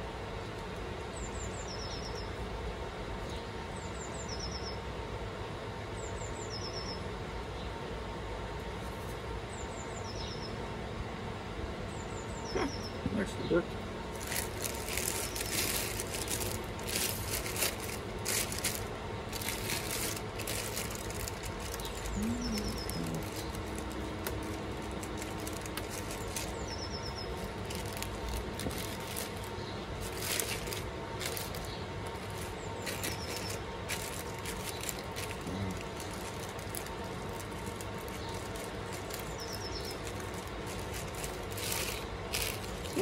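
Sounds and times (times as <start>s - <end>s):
plastic packaging crinkling: 14.1s - 43.0s.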